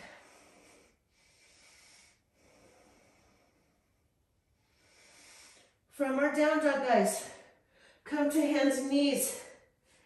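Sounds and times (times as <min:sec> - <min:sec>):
faint breathing: 0:00.0 - 0:05.9, 0:07.2 - 0:08.1.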